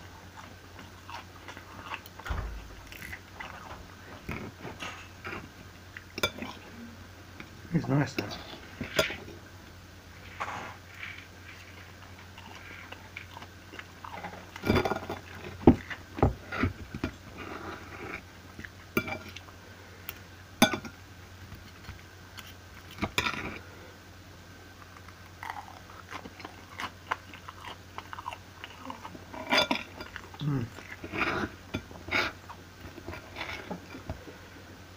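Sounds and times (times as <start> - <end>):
chewing: 0.0 - 6.7, 10.2 - 20.2, 24.8 - 34.6
low steady hum: 0.0 - 34.9.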